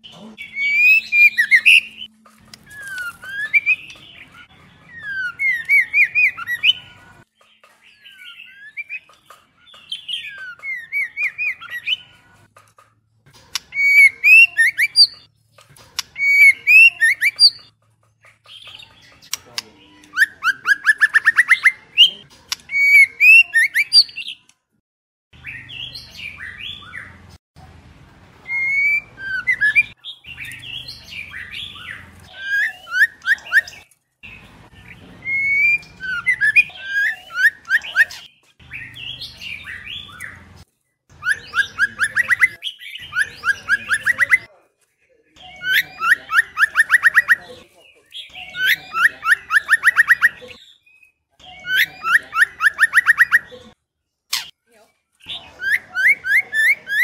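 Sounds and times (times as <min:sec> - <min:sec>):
bird whistling and chirping: 0:00.4 - 0:07.0, 0:08.0 - 0:12.0, 0:13.7 - 0:15.3, 0:16.2 - 0:17.7, 0:28.4 - 0:40.4, 0:41.2 - 0:44.5, 0:48.3 - 0:50.8, 0:51.4 - 0:53.5.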